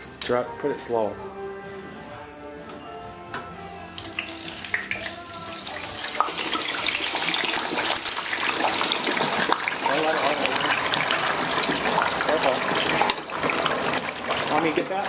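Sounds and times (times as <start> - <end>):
hot oil sizzling and crackling: 4.0 - 15.0.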